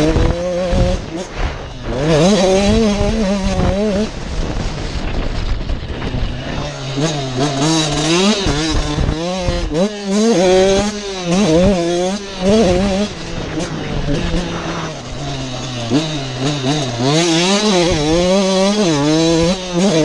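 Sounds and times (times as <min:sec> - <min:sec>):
two-stroke motorcycle engine revving: 0:00.0 - 0:20.0.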